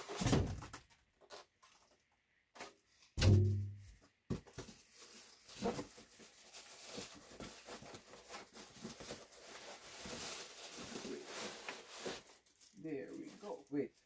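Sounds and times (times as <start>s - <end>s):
cardboard and plastic rustling: 3.8s - 13.8s.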